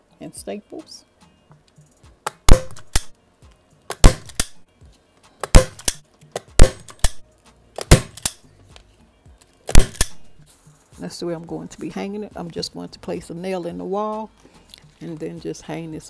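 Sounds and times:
staple gun snapping into wood: 2.3 - 3.1, 3.9 - 4.6, 5.4 - 7.2, 7.8 - 8.4, 9.7 - 10.3.

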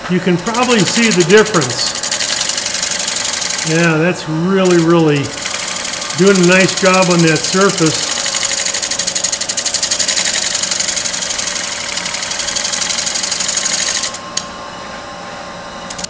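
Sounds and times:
scraper cutting spinning wooden bowl: 0.0 - 14.2
lathe hum: 0.0 - 16.0.

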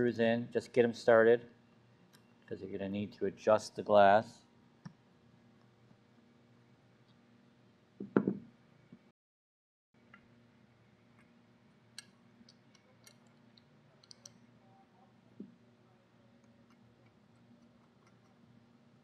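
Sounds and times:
soft knock: 8.0 - 8.5.

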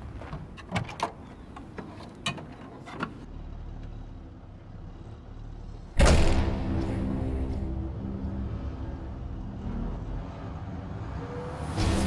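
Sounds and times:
person climbing into truck cab: 0.0 - 3.3
steady low drone: 3.3 - 12.0
loud hit: 6.0 - 7.7.

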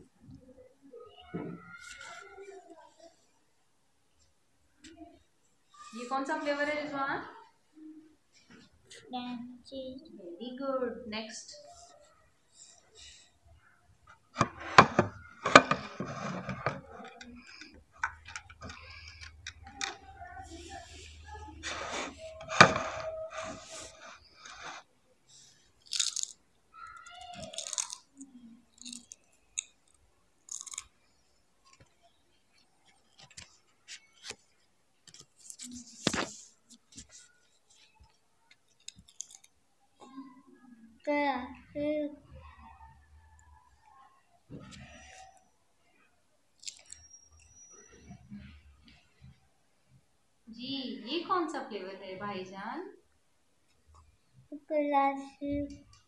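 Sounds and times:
potato chips crackling: 25.8 - 26.4, 27.3 - 28.1, 28.8 - 30.9, 38.9 - 39.5.

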